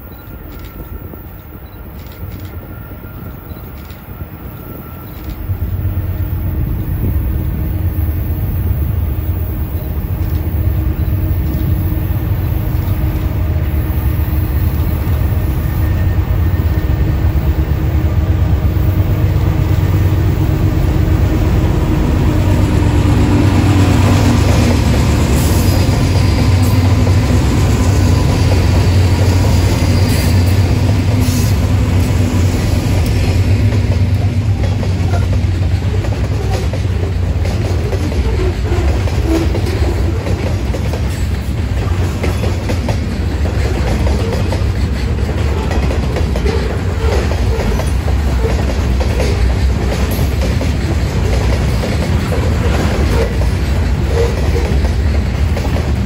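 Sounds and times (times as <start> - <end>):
diesel locomotive engines rumbling: 0.0 - 56.0.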